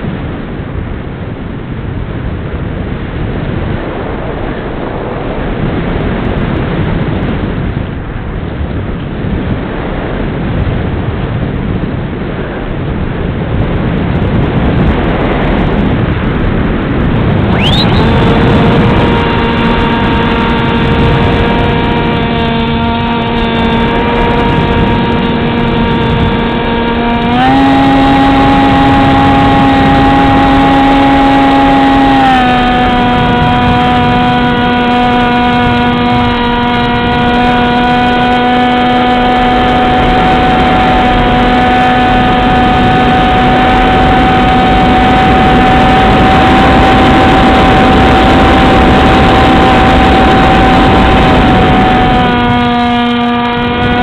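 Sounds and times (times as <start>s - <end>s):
rough rushing noise: 0.0s - 54.0s
model airplane motor droning: 17.0s - 54.0s.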